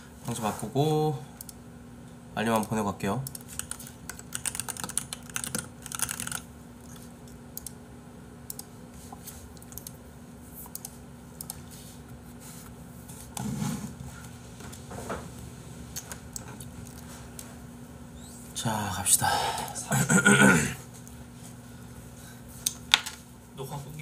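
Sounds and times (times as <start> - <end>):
faint steady hum: 0.0 - 24.0
typing on computer keyboard: 2.6 - 7.0.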